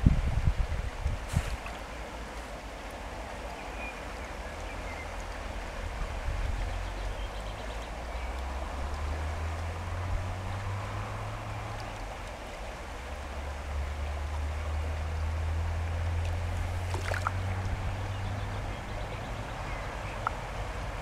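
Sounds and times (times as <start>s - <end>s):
river water flowing: 0.0s - 21.0s.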